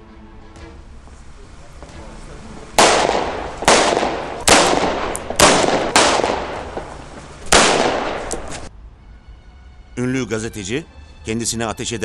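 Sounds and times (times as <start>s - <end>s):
pistol shots echoing: 2.7s - 8.6s.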